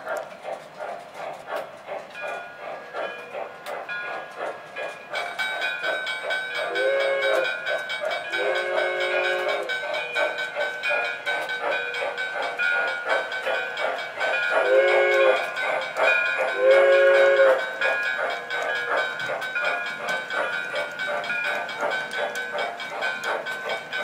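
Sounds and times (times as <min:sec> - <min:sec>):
model train clicking on track: 0:00.0 - 0:24.0
model train whistle: 0:06.7 - 0:07.4, 0:08.4 - 0:09.7, 0:14.6 - 0:15.4, 0:16.6 - 0:17.6.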